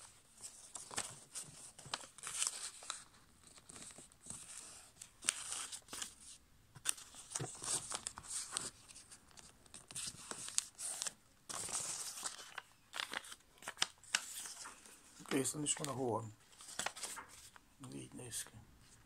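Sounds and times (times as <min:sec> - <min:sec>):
paper rustling and crinkling: 0:00.0 - 0:17.6
paper creases crackling: 0:06.8 - 0:17.6.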